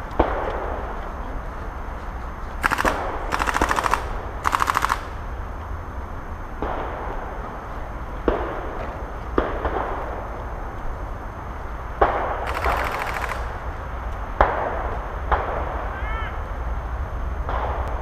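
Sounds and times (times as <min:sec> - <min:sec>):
airsoft gun single shots: 0:02.6 - 0:05.2
airsoft gun automatic fire: 0:02.6 - 0:05.4, 0:12.0 - 0:13.7.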